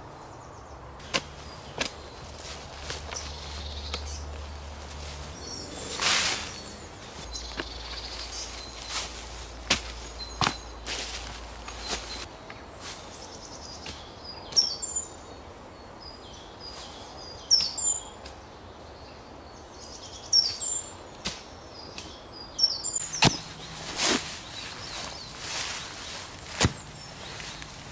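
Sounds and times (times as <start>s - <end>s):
outdoor background noise: 0.0s - 27.9s
spade striking soil: 1.0s - 3.3s, 5.9s - 6.8s, 8.8s - 12.2s, 23.0s - 27.8s
birds singing whistles and trills: 11.6s - 12.3s, 13.2s - 15.4s, 16.0s - 18.2s, 19.8s - 21.0s, 21.8s - 27.8s.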